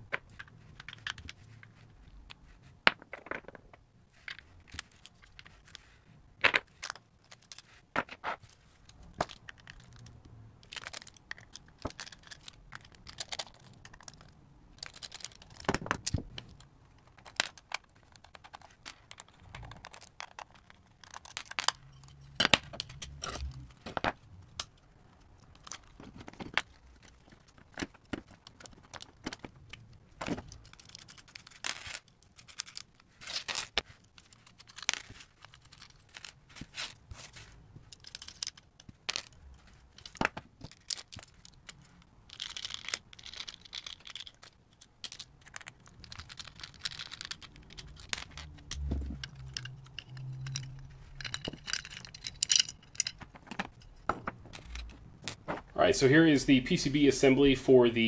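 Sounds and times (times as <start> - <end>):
small metal parts clinking: 4.2 - 7.8, 8.4 - 37.0, 37.8 - 55.4.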